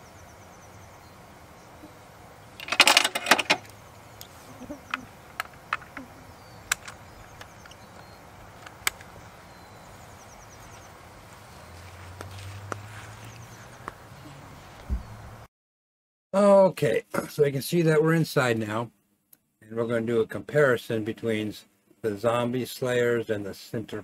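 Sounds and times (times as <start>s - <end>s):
equipment clattering: 2.6s - 3.7s
sharp clicks: 2.6s - 9.2s.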